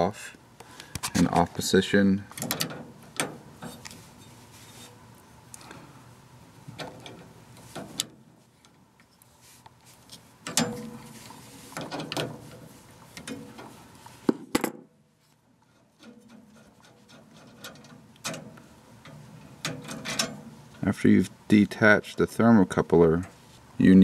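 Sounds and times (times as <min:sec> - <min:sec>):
wrench clicking and scraping metal: 0:15.7 - 0:20.5.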